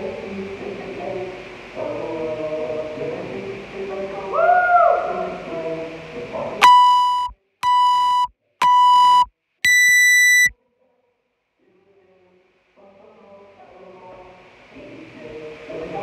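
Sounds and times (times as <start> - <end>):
countdown timer beeps: 6.6 - 10.5.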